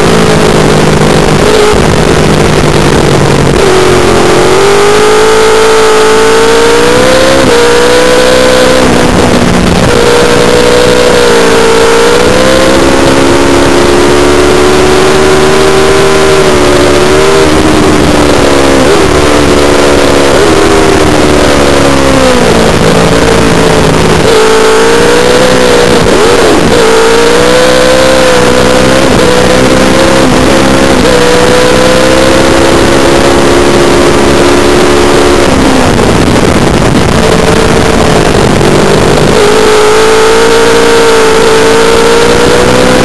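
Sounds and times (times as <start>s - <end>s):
wind rush over microphone: 0.0s - 15.2s, 16.3s - 43.0s
motorcycle engine accelerating: 0.0s - 43.0s.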